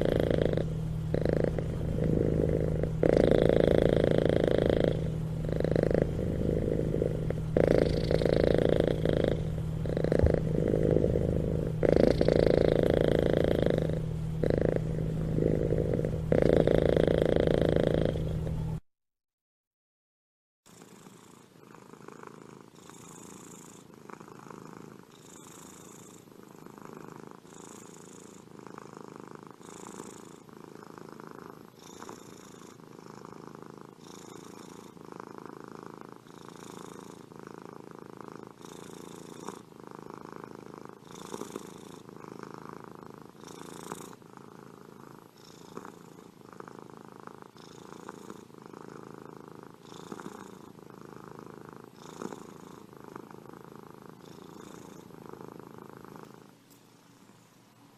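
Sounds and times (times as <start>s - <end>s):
cat purring: 0.0s - 18.8s, 20.7s - 57.4s.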